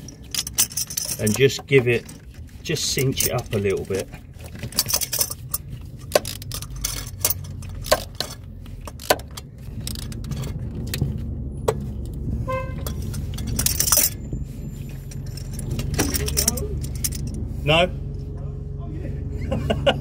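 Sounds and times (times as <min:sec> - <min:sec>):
vehicle engine rumble: 0:00.0 - 0:20.0
car horn toot: 0:12.4 - 0:13.1.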